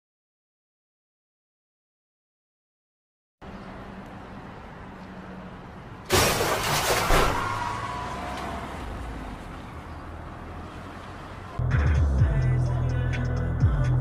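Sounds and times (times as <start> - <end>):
street traffic: 3.4 - 14.0
car crash metal and glass: 6.1 - 8.8.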